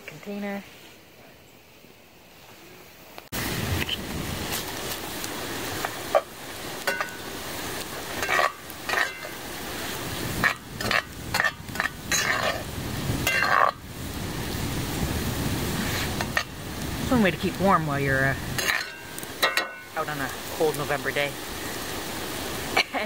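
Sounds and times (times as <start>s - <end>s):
meat sizzling in oil: 3.4s - 23.0s
spoon scraping and clinking pot: 8.2s - 9.4s, 10.4s - 12.6s, 13.2s - 13.8s, 18.6s - 19.9s.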